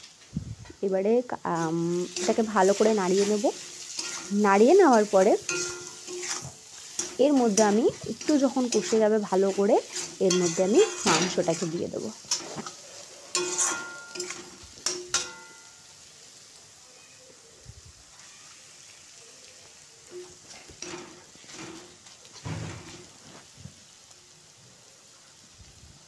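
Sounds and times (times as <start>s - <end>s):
masala sizzling in oil: 0.0s - 26.0s
spatula scraping pan: 2.1s - 15.8s, 20.1s - 23.2s.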